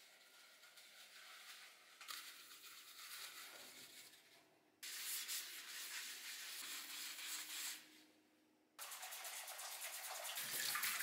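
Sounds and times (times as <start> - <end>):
paper towel rubbing saucepan: 0.0 - 7.9.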